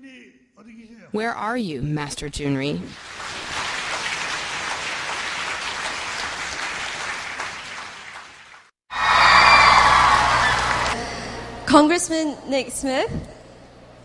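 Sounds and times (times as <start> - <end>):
audience applauding: 2.9 - 11.0
large crowd noise: 8.9 - 11.0.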